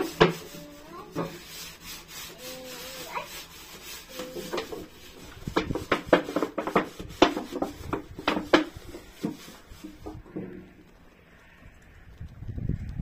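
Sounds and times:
metal tin knocking and clattering: 0:04.2 - 0:10.7.

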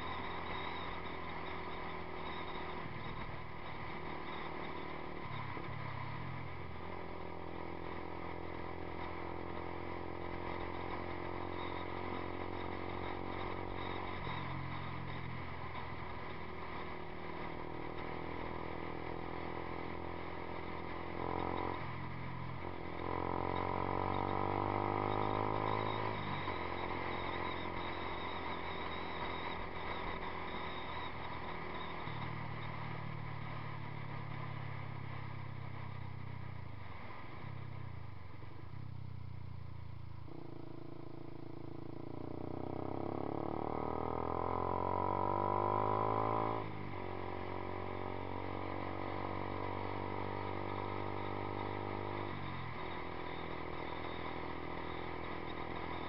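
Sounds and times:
motorbike engine revving: 0:40.2 - 0:53.3.

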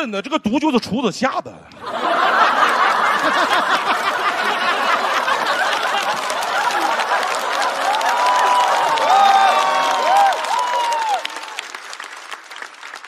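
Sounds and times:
audience laughing: 0:01.7 - 0:08.9
audience clapping: 0:01.9 - 0:13.0.

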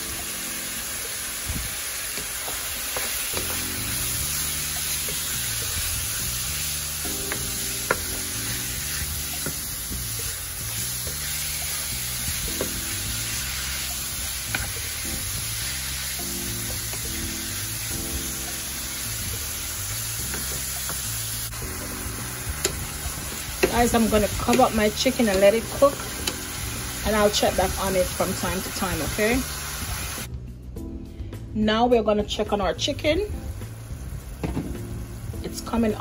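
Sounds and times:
meat sizzling in oil: 0:00.0 - 0:30.3, 0:33.3 - 0:36.0
soft background music: 0:00.0 - 0:36.0.

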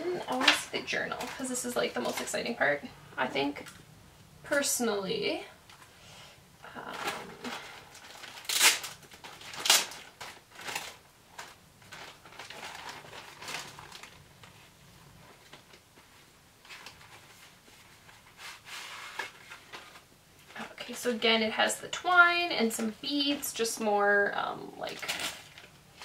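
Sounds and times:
packaging crinkling and rustling: 0:00.1 - 0:02.6, 0:06.8 - 0:21.2, 0:24.6 - 0:26.0.

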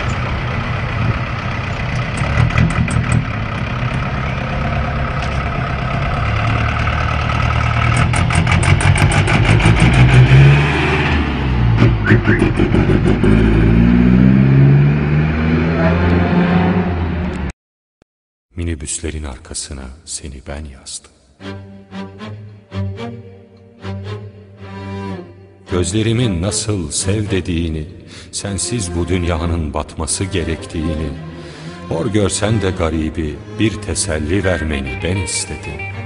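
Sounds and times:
minibus engine revving: 0:00.0 - 0:17.5.

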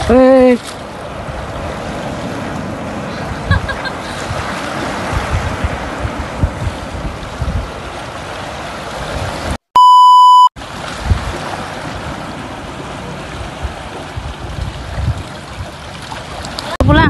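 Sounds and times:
sea water splashing over rocks: 0:00.0 - 0:09.6, 0:10.6 - 0:17.0
test-tone beep: 0:09.8 - 0:10.6.

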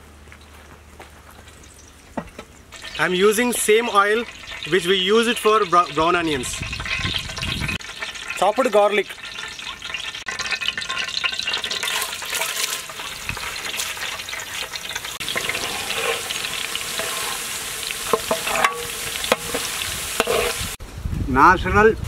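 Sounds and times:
garlic sizzling in hot oil: 0:02.7 - 0:20.8
metal ladle stirring in pot: 0:02.8 - 0:03.0, 0:04.2 - 0:08.4, 0:09.1 - 0:20.8.

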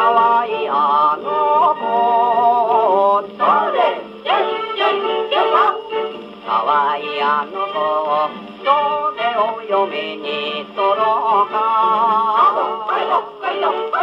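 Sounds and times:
person singing with vibrato: 0:00.0 - 0:14.0
small band playing: 0:00.0 - 0:14.0.

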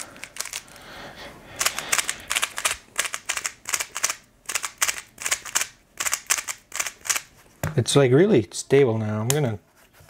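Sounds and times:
speed cube clicking: 0:00.0 - 0:00.7, 0:01.6 - 0:07.3.

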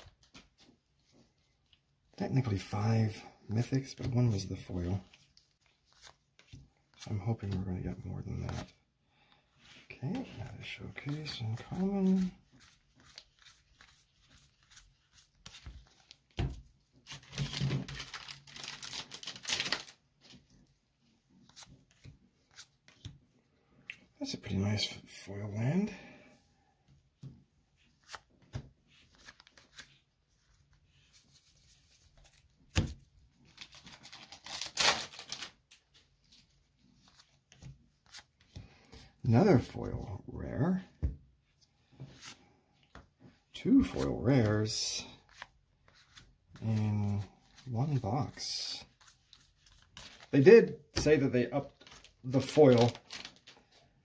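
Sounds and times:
wrapper and cards crinkling: 0:10.1 - 0:20.4, 0:33.4 - 0:36.4, 0:43.8 - 0:53.9
wrapper tearing and crinkling: 0:17.1 - 0:20.0, 0:33.6 - 0:35.6, 0:51.8 - 0:53.6.

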